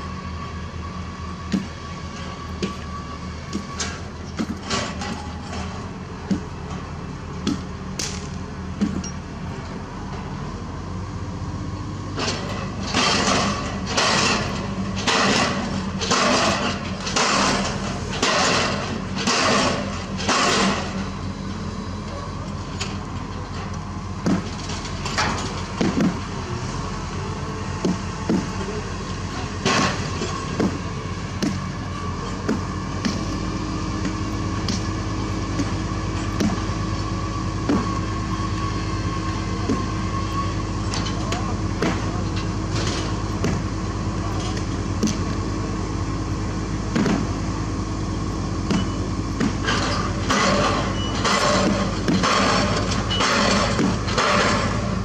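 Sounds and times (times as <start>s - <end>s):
crane engine drone: 0.0s - 55.0s
short metallic knocks: 12.2s - 21.0s, 35.6s - 36.6s, 48.7s - 54.9s.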